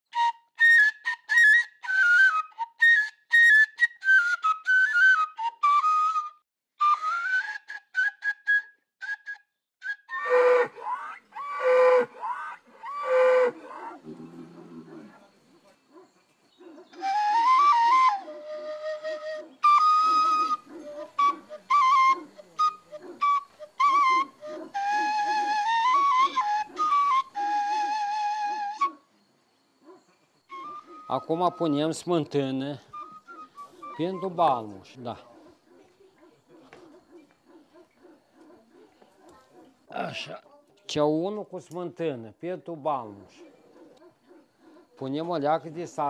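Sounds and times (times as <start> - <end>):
breathy flute melody: 0.1 - 14.0, 17.0 - 29.1, 30.5 - 32.1, 32.8 - 34.8.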